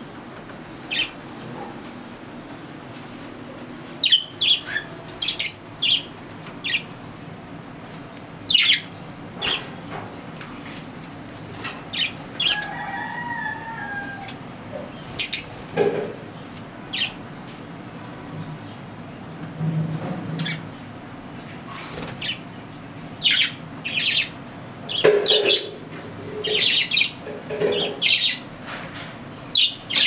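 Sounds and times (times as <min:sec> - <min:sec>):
budgerigars chirping: 0:00.9 - 0:01.1, 0:04.0 - 0:06.9, 0:08.5 - 0:09.6, 0:16.9 - 0:17.2, 0:23.2 - 0:25.8, 0:26.4 - 0:28.4.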